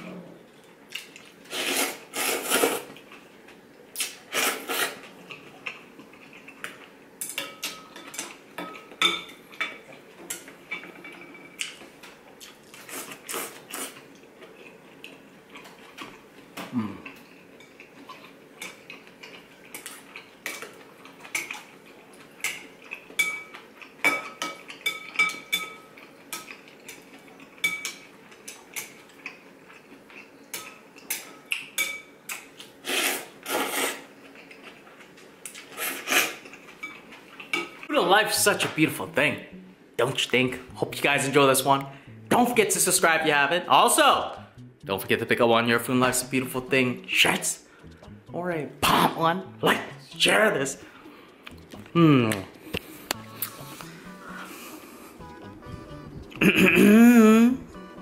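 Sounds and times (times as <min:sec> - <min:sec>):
slurping noodles: 0:01.5 - 0:03.0, 0:04.3 - 0:05.0, 0:32.8 - 0:34.1, 0:35.6 - 0:36.4
utensils clinking on ceramic bowl: 0:07.2 - 0:11.6, 0:22.4 - 0:28.1.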